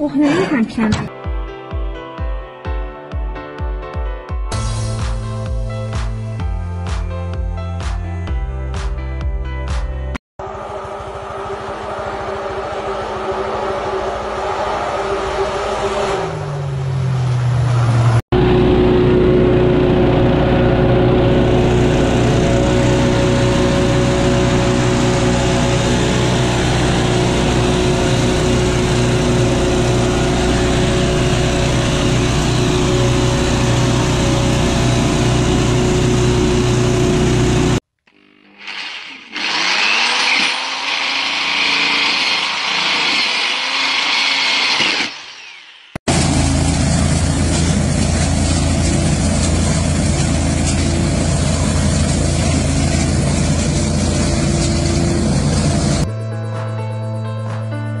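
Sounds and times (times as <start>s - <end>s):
gasoline leaf blowers running: 10.4s - 56.1s
vehicle engine winding down: 10.4s - 56.1s
power drill whirring: 38.1s - 46.0s.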